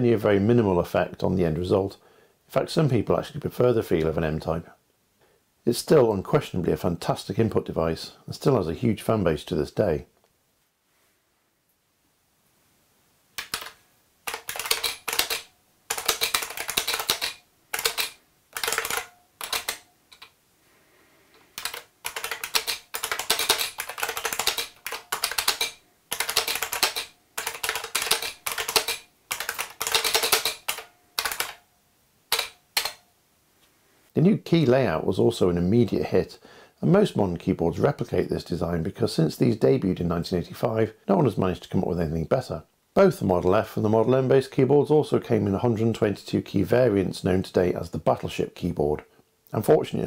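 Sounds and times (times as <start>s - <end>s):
keyboard keys clacking: 13.4s - 20.3s, 21.6s - 31.6s.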